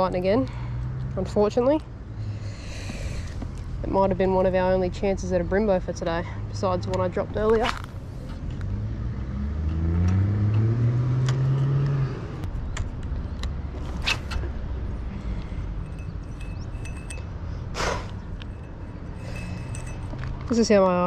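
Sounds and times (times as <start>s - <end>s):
vehicle engine revving: 8.1s - 16.8s.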